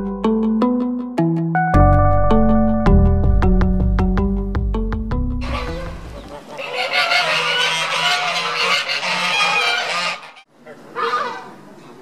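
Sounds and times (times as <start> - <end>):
geese honking: 5.4 - 11.6.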